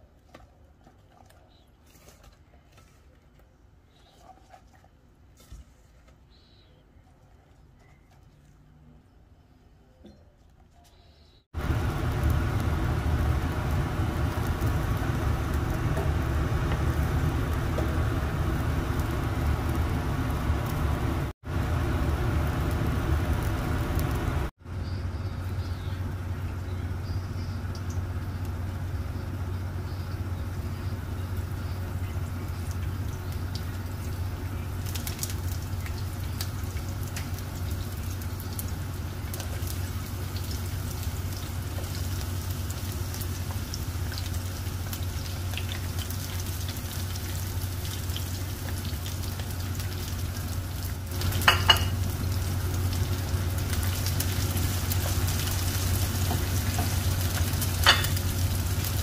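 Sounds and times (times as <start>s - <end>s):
steady low rumble: 11.6s - 39.0s
garlic and onion sizzling in oil: 11.6s - 59.0s.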